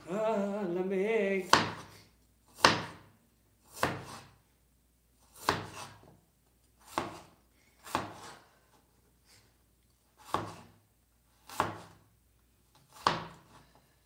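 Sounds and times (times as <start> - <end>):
cleaver chopping on cutting board: 2.6 - 3.0, 3.7 - 4.2, 10.3 - 10.6, 11.5 - 11.9, 13.0 - 13.4.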